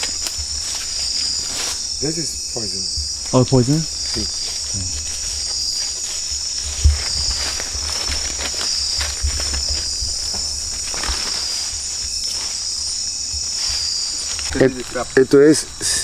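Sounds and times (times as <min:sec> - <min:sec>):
crickets and insects trilling: 0:00.0 - 0:16.0.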